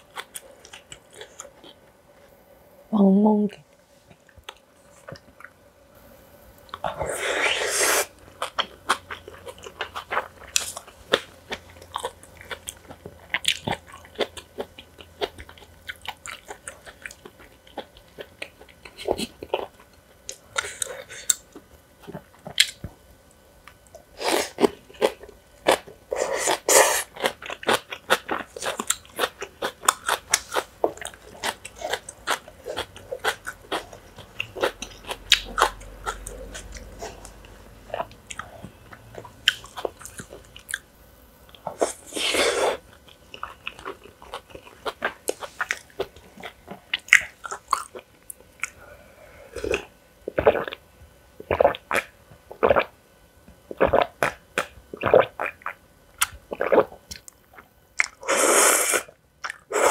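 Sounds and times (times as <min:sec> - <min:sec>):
person crunching and chewing: 0:00.0 - 0:01.8, 0:06.7 - 0:22.8, 0:24.2 - 0:40.8, 0:41.5 - 0:48.8.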